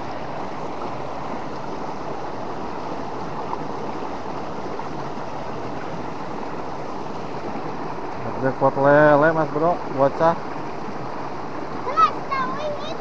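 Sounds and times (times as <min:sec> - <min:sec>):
river current rushing: 0:00.0 - 0:13.0.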